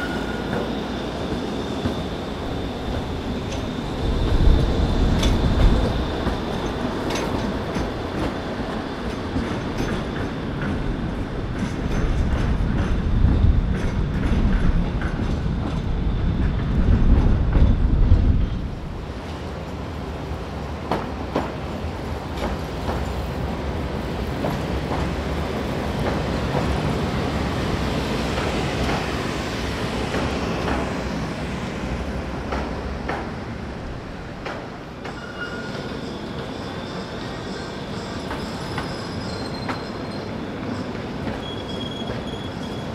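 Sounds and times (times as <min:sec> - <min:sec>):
tram rumbling over rails: 0:00.0 - 0:42.9
high wheel squeal: 0:35.0 - 0:42.9.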